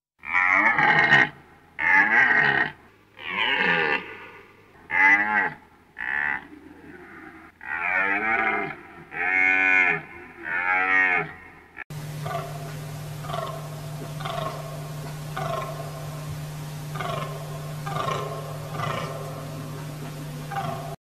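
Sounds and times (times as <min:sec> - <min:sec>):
deer stags roaring: 0:00.2 - 0:21.0.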